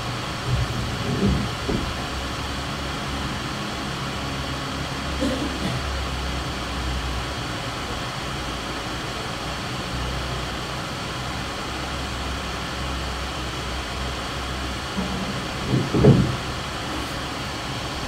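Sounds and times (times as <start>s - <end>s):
low hum: 13.7s - 18.0s.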